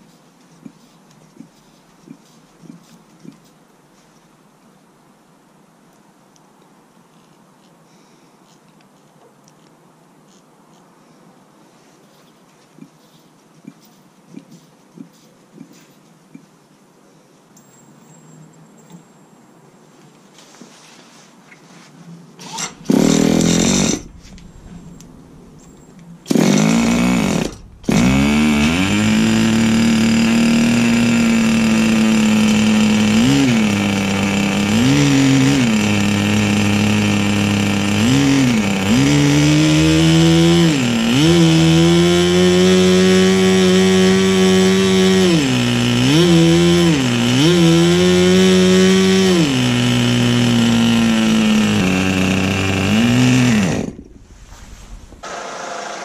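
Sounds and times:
electric starter spinning: 22.4 - 56.0
model aeroplane engine at high revs: 22.5 - 24.6, 26.3 - 54.1, 55.2 - 56.0.

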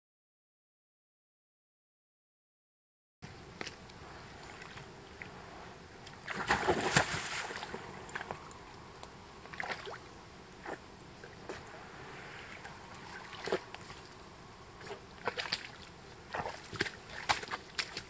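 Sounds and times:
water splashing and sloshing: 6.0 - 18.0.

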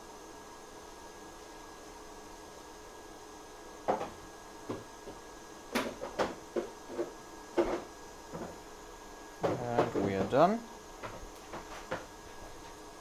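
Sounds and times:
faint electrical hum: 0.0 - 13.0
hand tools knocking on workbench: 9.4 - 10.4.

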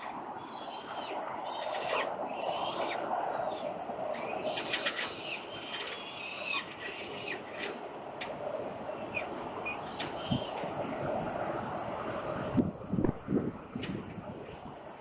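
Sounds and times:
city traffic hum: 0.0 - 15.0.

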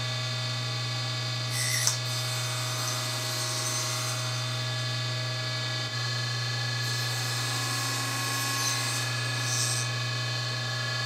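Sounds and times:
table saw running: 0.0 - 11.0
saw blade cutting wood: 1.5 - 4.6, 6.8 - 10.2.

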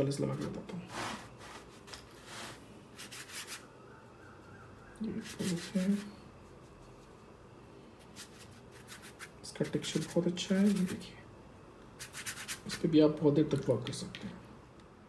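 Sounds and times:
rubbing and scraping on paper: 0.4 - 3.6, 5.1 - 7.3, 8.0 - 11.0, 12.0 - 12.8.

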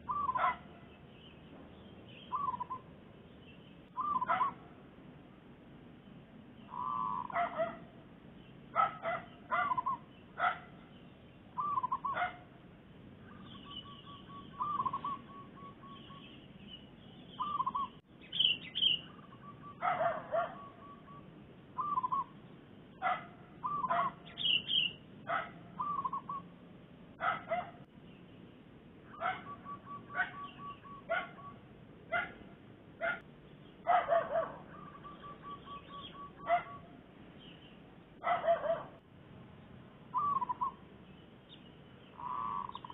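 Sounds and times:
doves cooing trills: 0.0 - 0.9, 2.3 - 2.9, 3.9 - 4.7, 6.7 - 7.9, 8.8 - 10.8, 11.6 - 12.5, 13.3 - 16.3, 17.4 - 18.0, 18.8 - 22.4, 23.0 - 26.5, 29.1 - 32.4, 33.9 - 37.0, 40.1 - 40.8, 42.1 - 42.9.

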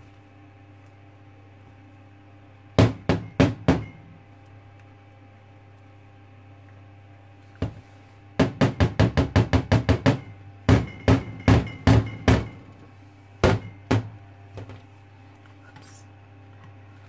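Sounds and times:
plastic mold knocking on steel: 8.4 - 12.6.

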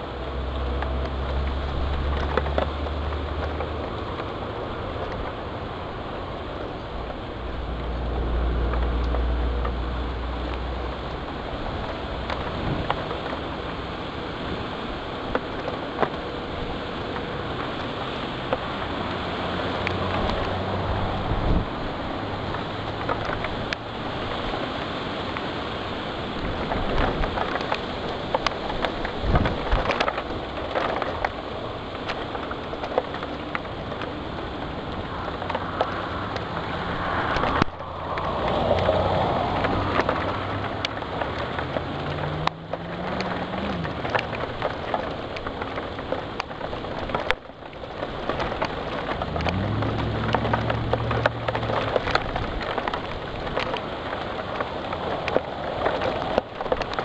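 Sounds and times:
heavy rain pattering: 0.0 - 57.0
low droning hum: 29.0 - 46.0.

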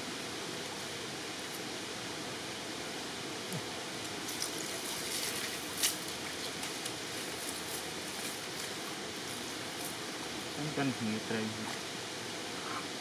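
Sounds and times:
shallow stream running: 0.0 - 13.0
wet squelches from cast net: 4.3 - 6.8.

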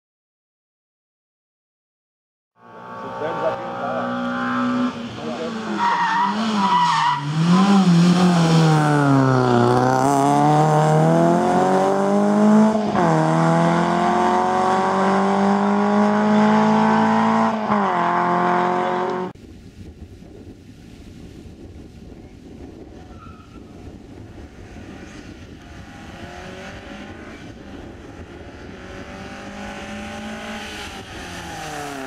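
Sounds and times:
rally car engine revving: 2.6 - 19.3, 24.6 - 32.0.

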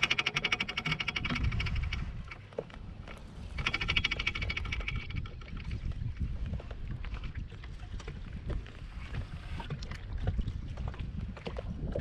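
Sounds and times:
fishing reel clicking: 0.0 - 2.4, 3.6 - 5.4
low wind rumble: 0.0 - 12.0.

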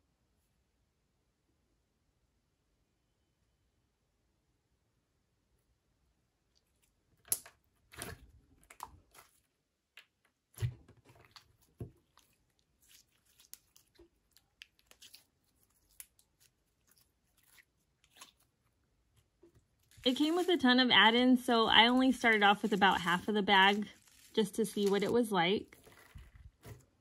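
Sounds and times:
slime squelching: 6.4 - 27.0
slime crackling and popping: 7.2 - 18.6, 21.7 - 26.7.

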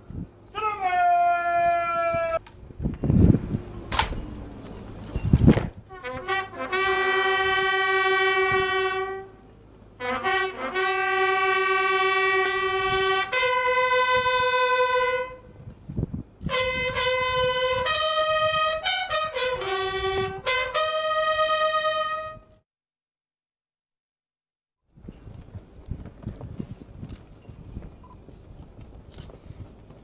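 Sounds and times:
bugle call: 5.9 - 15.5, 16.5 - 22.6.

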